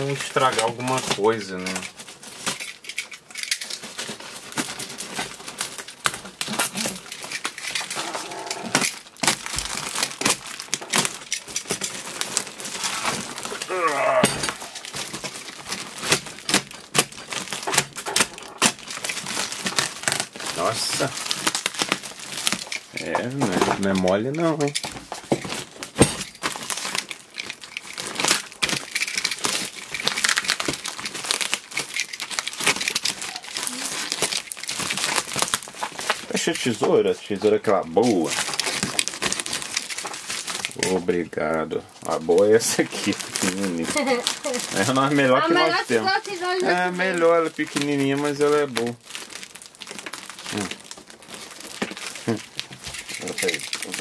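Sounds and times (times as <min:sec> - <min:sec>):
plastic wrap crinkling: 0:00.0 - 0:54.0
tape peeling off cardboard: 0:05.1 - 0:23.1.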